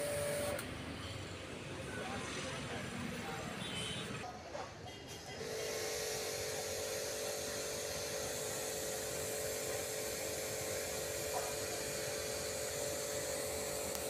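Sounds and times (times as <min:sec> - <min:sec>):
pressure washer motor humming: 0:00.0 - 0:00.6, 0:05.4 - 0:14.0.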